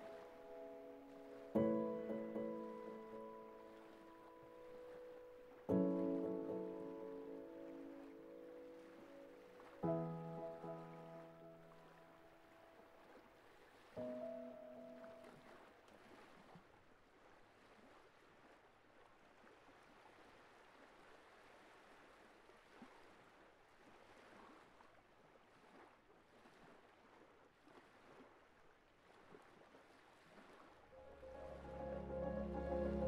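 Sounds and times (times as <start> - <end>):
music: 0.0 - 12.5, 14.0 - 15.4, 30.9 - 33.0
water sloshing and splashing: 0.0 - 31.0.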